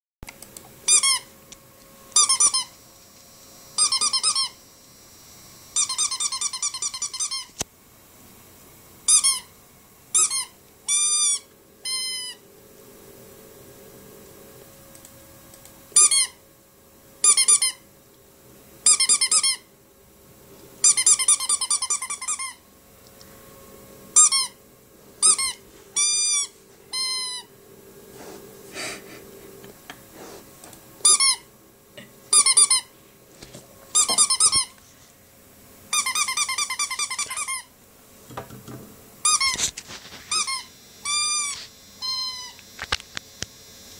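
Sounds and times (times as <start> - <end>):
rubber squeaky toy squeaking: 5.8 - 7.5, 35.9 - 37.7.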